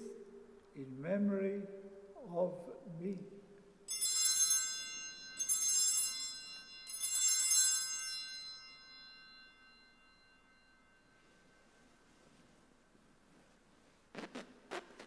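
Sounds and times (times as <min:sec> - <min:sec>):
altar bells ringing: 0:03.9 - 0:12.6.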